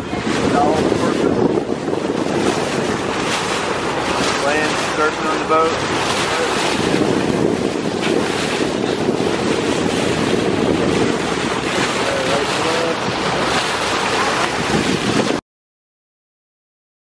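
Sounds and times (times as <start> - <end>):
water rushing off boat bow: 0.0 - 15.4
wind buffeting microphone: 0.0 - 15.4.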